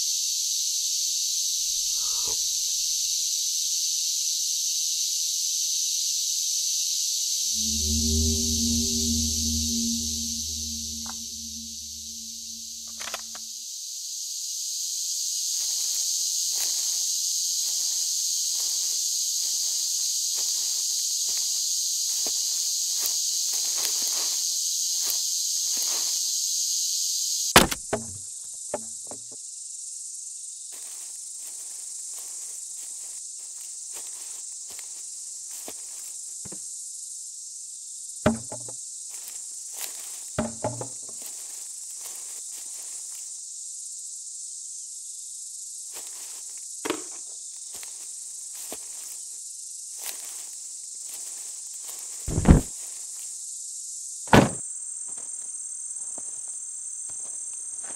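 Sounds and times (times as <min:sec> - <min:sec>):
insects buzzing: 0:00.0 - 0:57.9
heavy thud: 0:52.3 - 0:52.7, 0:54.3 - 0:54.6.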